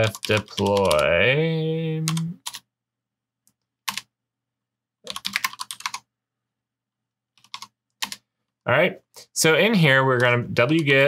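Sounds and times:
computer keyboard typing: 0.0s - 1.3s, 2.1s - 2.7s, 3.5s - 4.1s, 5.0s - 6.1s, 7.4s - 8.3s, 10.1s - 11.0s.

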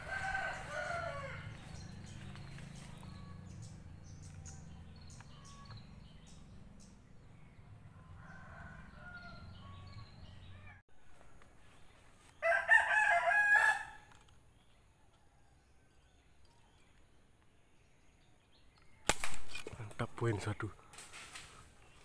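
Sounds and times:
rooster crowing: 0.0s - 1.9s, 7.9s - 10.8s, 12.4s - 14.1s.

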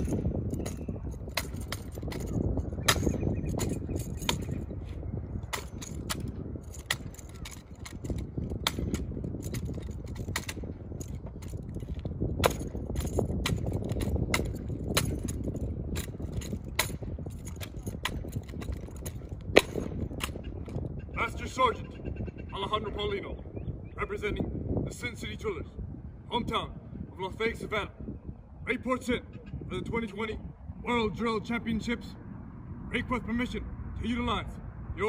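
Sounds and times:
boot heels striking asphalt: 18.9s - 20.2s.

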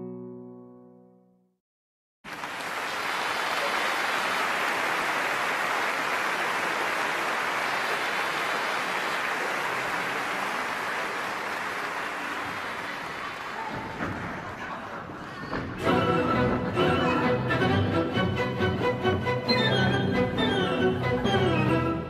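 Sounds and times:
audience applauding: 2.2s - 15.3s.

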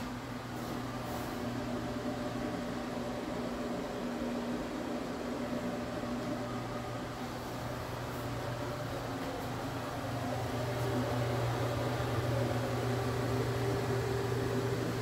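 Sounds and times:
electric fan humming: 0.0s - 15.0s.

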